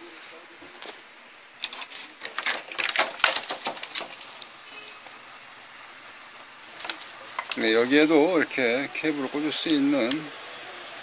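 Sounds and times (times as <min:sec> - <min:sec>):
plastic sheet crackling and clicking: 0:01.6 - 0:05.2, 0:06.7 - 0:07.7.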